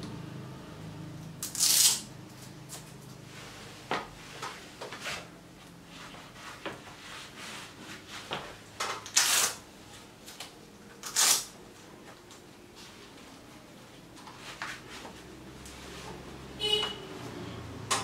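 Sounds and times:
velcro strap ripping: 0:01.4 - 0:02.1, 0:09.0 - 0:09.6, 0:11.0 - 0:11.5.

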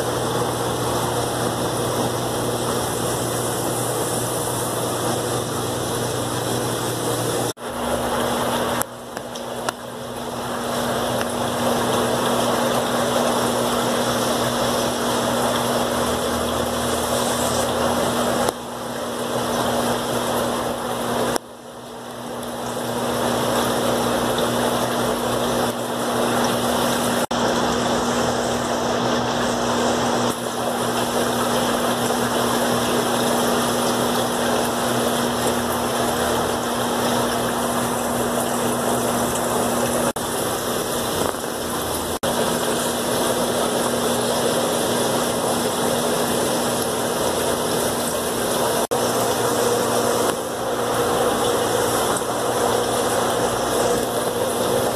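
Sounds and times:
aquarium air pumps humming: 0:00.0 - 0:54.9.

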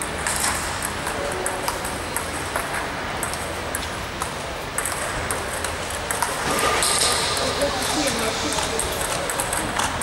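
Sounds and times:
ping pong ball hitting paddles: 0:00.0 - 0:10.0
ball bouncing on table: 0:00.2 - 0:07.2.

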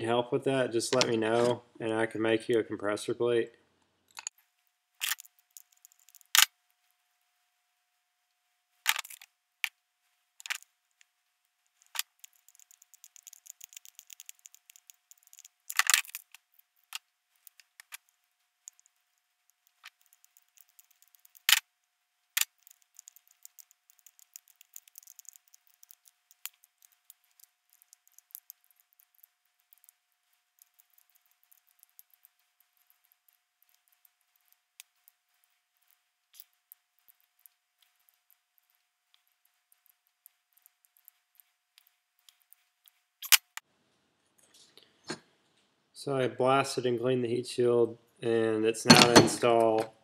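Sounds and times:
fast light ticking: 0:11.8 - 0:16.6, 0:17.4 - 0:21.6, 0:22.4 - 0:43.0.

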